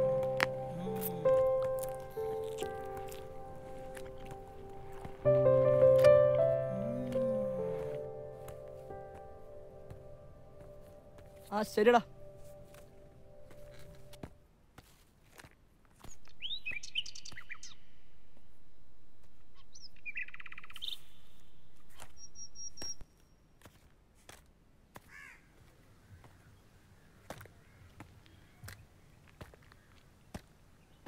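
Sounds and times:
birds chirping and calling: 16.2s - 17.8s.

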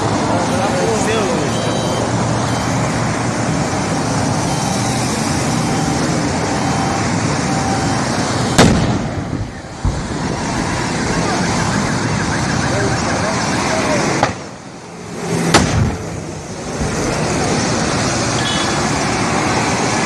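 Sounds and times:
highway traffic noise: 0.0s - 20.0s
loud explosion bang: 8.6s - 10.1s.

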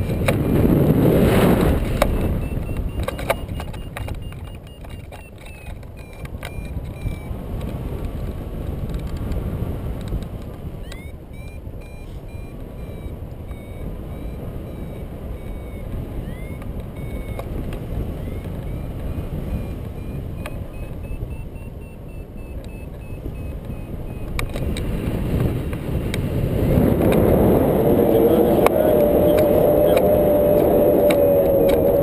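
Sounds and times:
wind rushing over microphone: 0.0s - 32.0s
variometer short beeps: 1.8s - 7.4s, 10.8s - 24.8s.

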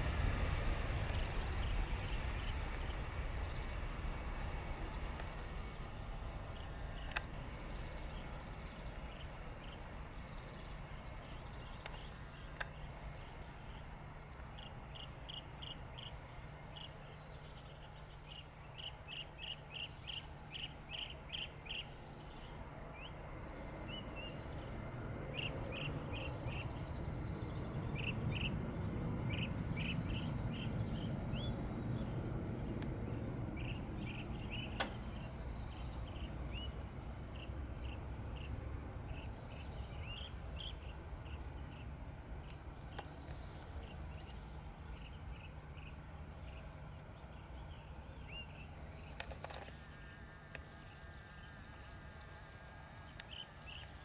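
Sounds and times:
jet engine rumble: 0.0s - 18.2s
high insect whine: 0.0s - 54.0s
insect chirps: 0.0s - 54.0s
sharp tick: 34.8s - 35.0s.

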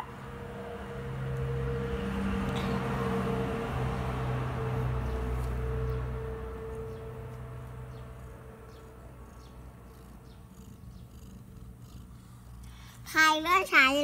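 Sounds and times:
cat purring: 6.6s - 13.0s.

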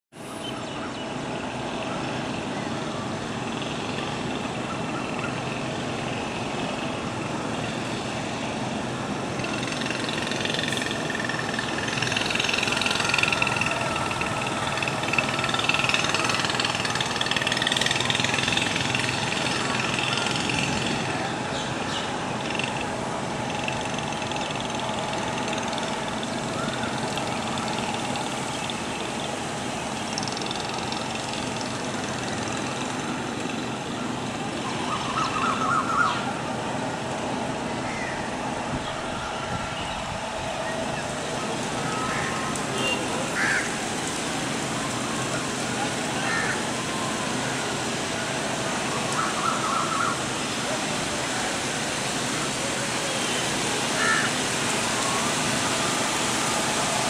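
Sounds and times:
low engine-like hum: 0.1s - 57.0s
even hiss: 40.0s - 57.0s.

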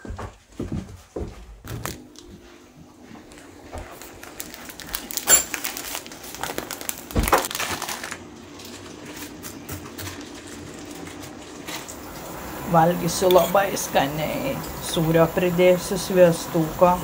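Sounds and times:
plastic packet crinkling: 3.8s - 11.9s.

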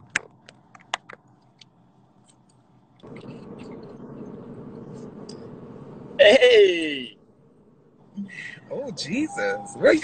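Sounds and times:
faint low hum: 1.3s - 10.0s
steady hiss: 3.0s - 9.6s.

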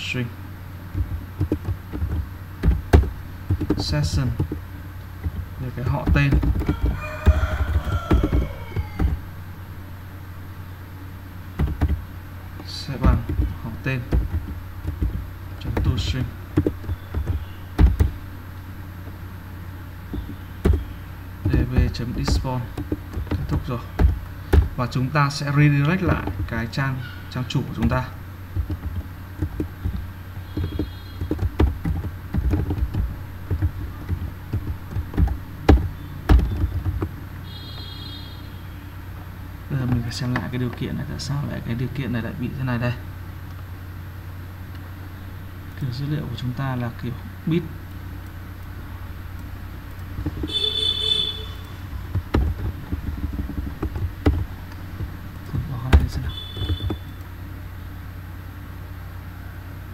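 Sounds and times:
low hum: 0.0s - 59.9s
typing on computer keyboard: 6.0s - 9.3s, 28.6s - 37.2s.

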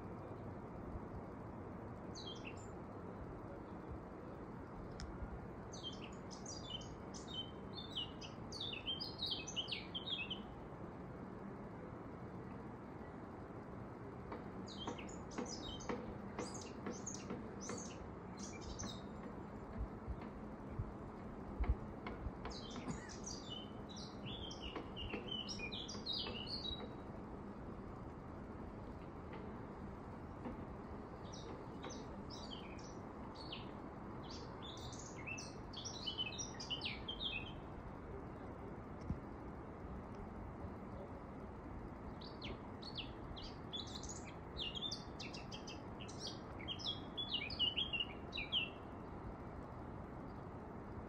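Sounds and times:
low background hiss: 0.0s - 51.0s
bird singing: 2.1s - 2.9s, 5.7s - 10.6s, 14.3s - 20.8s, 21.6s - 27.2s, 30.3s - 37.8s, 42.1s - 49.2s.

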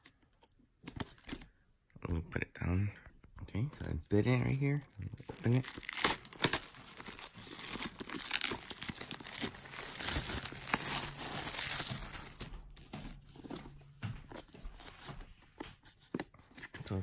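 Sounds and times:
plastic shrink wrap tearing: 4.2s - 12.4s
handling of box: 4.3s - 13.7s.

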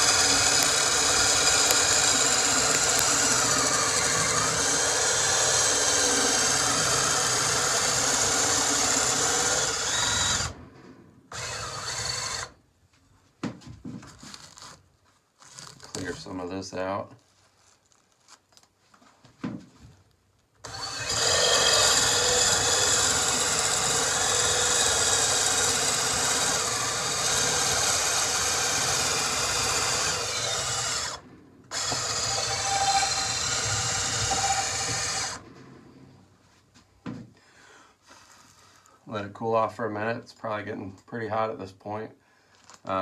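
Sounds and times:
drill forcing wood through die: 0.0s - 10.7s, 11.3s - 12.6s, 20.6s - 36.0s.

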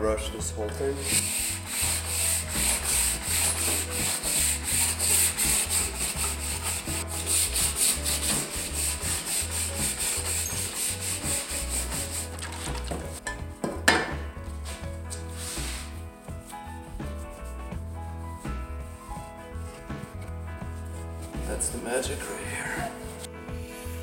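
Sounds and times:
wire brush scraping wood: 0.7s - 13.2s, 14.6s - 17.2s.

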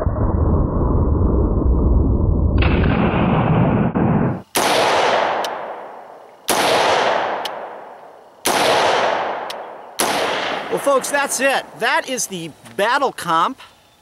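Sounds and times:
steady low rumble: 0.0s - 12.1s
rifle shots: 2.6s - 11.6s.

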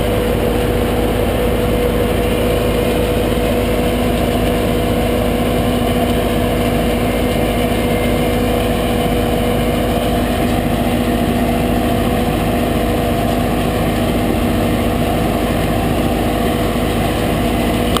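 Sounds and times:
harvester conveyor running: 0.0s - 18.0s
tractor engines humming: 0.0s - 18.0s.

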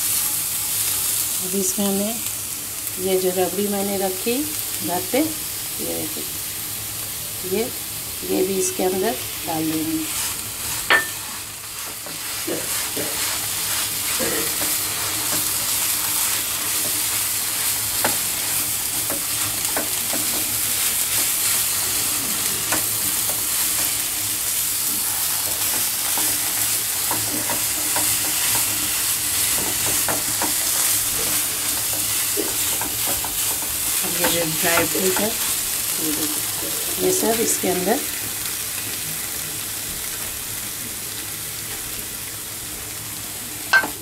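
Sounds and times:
coconut sizzling in a pan: 0.0s - 44.0s
spatula scraping and tapping pan: 10.0s - 21.7s, 24.9s - 35.5s, 43.7s - 44.0s.

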